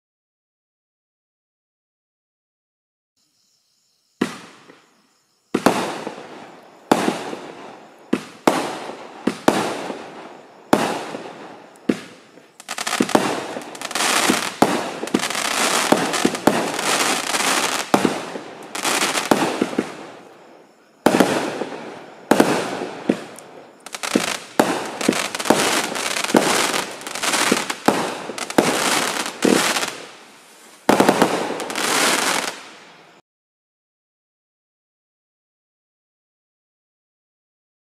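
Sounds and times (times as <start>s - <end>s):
firework bangs: 4.2s - 4.8s, 5.5s - 33.2s.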